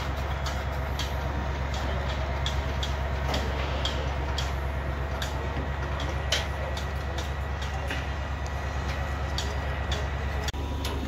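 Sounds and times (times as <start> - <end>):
machinery drone: 0.0 - 11.0.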